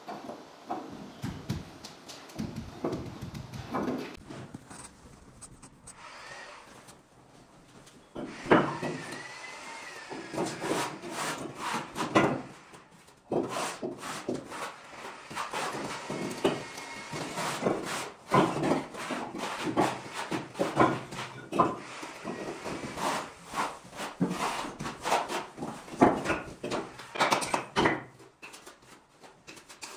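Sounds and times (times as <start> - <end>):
trowel scraping mortar: 13.3 - 25.6.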